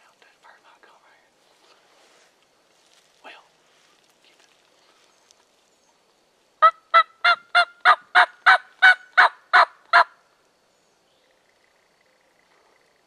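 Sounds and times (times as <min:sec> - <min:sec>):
turkey yelps: 0:06.6 - 0:10.1.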